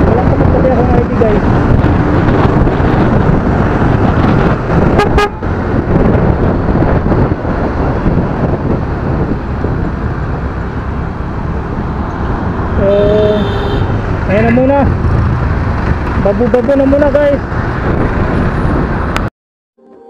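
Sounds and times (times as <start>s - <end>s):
motorcycle engine: 0.0s - 18.6s
wind and road noise: 0.0s - 19.3s
horn toot: 4.9s - 5.4s, 13.0s - 14.0s.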